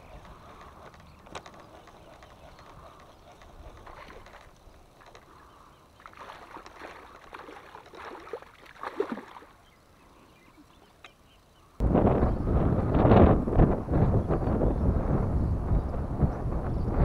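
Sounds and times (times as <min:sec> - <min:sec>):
water splashing: 0:03.7 - 0:09.8.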